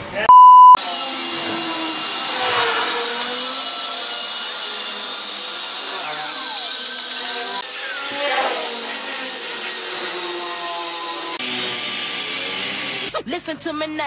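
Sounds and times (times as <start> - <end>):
electric machine polisher running: 0.8 - 13.2.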